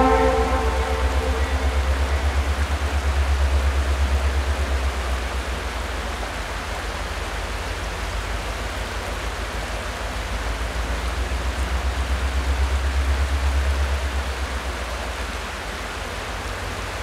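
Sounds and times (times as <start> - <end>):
low pulsing rumble: 0.0 - 5.0.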